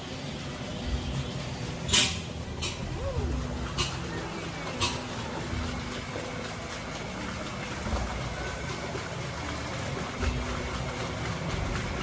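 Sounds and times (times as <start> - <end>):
water splashing and trickling: 0.0 - 12.0
boat motor running: 0.5 - 12.0.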